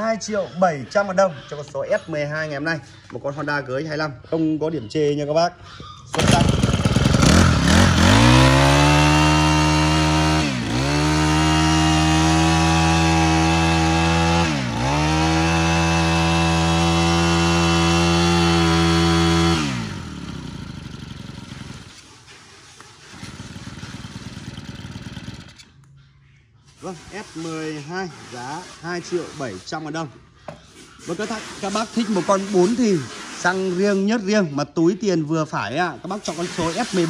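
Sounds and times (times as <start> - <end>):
brush cutter engine revving: 6.1 - 22.0, 23.0 - 25.8, 36.0 - 37.0.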